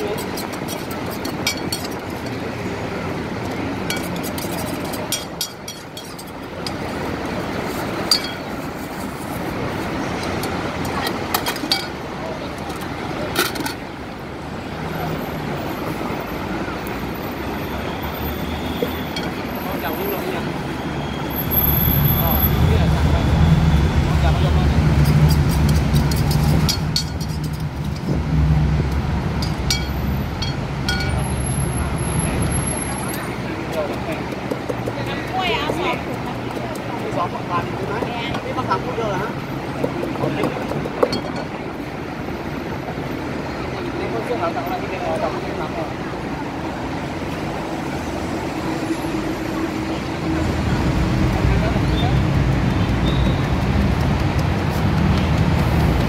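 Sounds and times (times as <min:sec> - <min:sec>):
road traffic noise: 0:00.0 - 0:56.0
metal spoon clinking on bowls: 0:00.1 - 0:02.4, 0:03.9 - 0:06.8, 0:08.1 - 0:08.5, 0:11.4 - 0:12.0, 0:25.3 - 0:27.7, 0:29.4 - 0:31.2
heavy vehicle engine running: 0:46.0 - 0:56.0.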